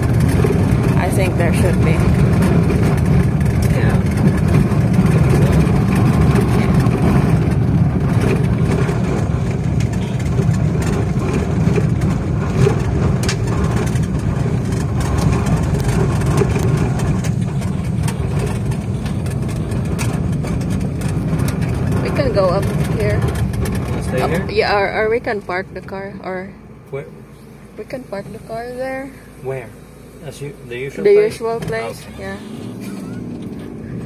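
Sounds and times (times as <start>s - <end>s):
small clicks and rattles: 0.0s - 24.5s
engine and road rumble: 0.0s - 34.0s.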